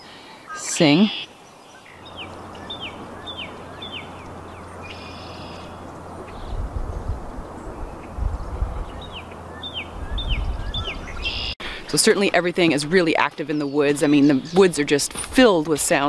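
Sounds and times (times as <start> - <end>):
cardinal whistling song: 0.0 - 6.6, 7.6 - 11.6
buzzy bird trill: 0.5 - 11.6
low rumble: 2.0 - 11.3.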